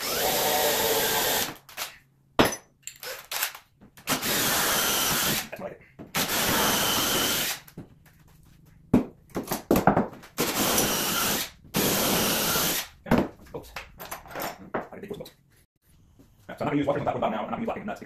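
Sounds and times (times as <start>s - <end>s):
cordless drill boring into wood: 0.0s - 1.6s, 4.1s - 5.4s, 6.2s - 7.6s, 10.4s - 12.9s.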